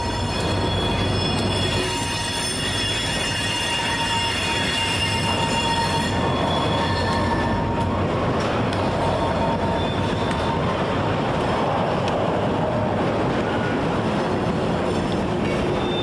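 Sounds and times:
high-pitched wheel squeal: 0.0 - 7.8, 9.0 - 10.7, 15.5 - 16.0
freight train rumble: 0.0 - 16.0.

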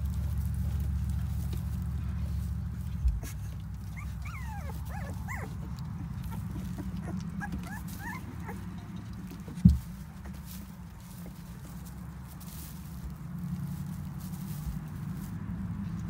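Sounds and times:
low steady hum: 0.0 - 16.0
puppies whimpering and squeaking: 3.0 - 11.3
dull thump: 9.6 - 10.0.

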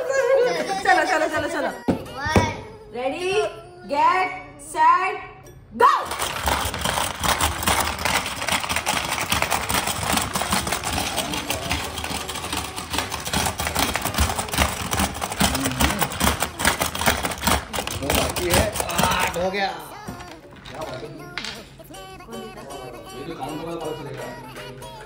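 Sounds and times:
plastic balls clattering: 6.0 - 21.6.

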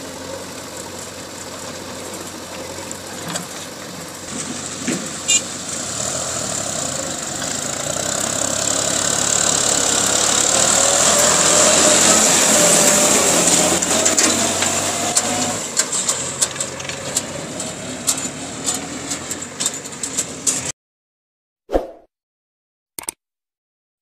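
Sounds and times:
tractor diesel engine running: 0.0 - 20.7
click: 23.0 - 23.2.

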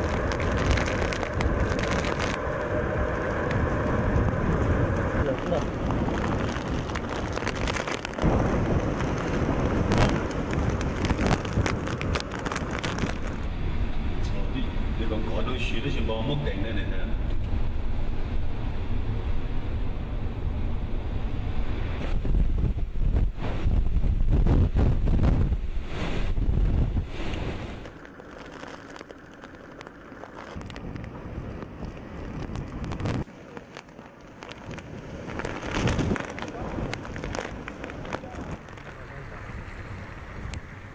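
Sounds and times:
sharp crackles: 0.0 - 14.4, 22.0 - 40.8
rain and debris ticking: 0.0 - 16.4, 26.3 - 40.9
strong wind gusts on microphone: 0.0 - 28.0, 30.4 - 33.8, 34.4 - 40.9.

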